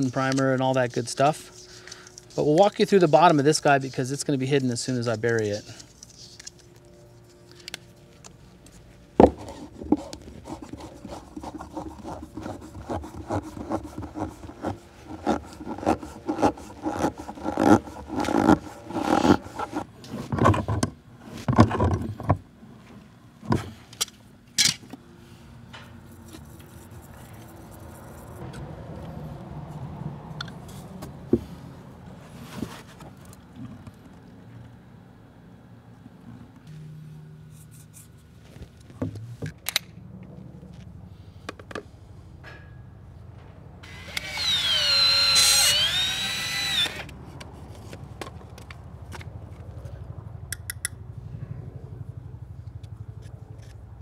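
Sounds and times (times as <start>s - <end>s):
plastic pipe scraping and clicking: 9.2s - 22.4s.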